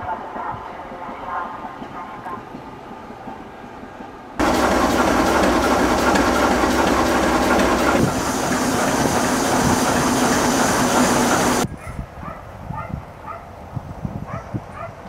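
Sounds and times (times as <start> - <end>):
diesel locomotive idling: 4.4 - 11.6.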